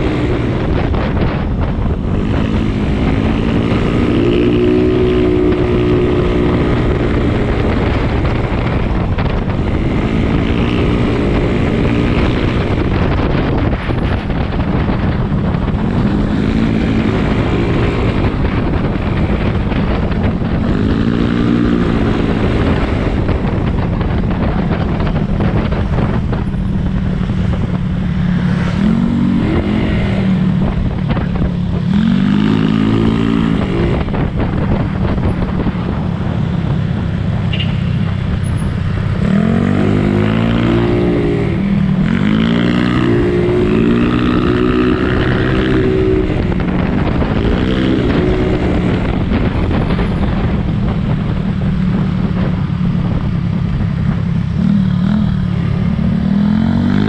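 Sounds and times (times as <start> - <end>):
wind and road noise: 0.0 - 57.0.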